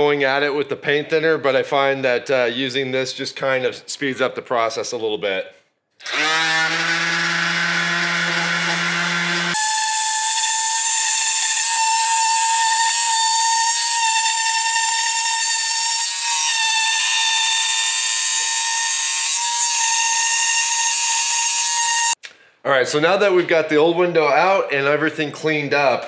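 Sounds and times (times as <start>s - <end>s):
orbital sander whining: 6.0s - 22.2s.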